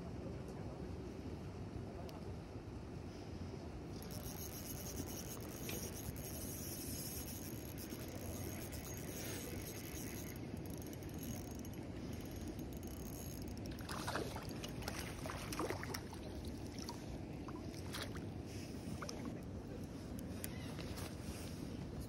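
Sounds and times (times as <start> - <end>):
low outdoor rumble: 0.0 - 22.0
water splashing: 13.7 - 18.2.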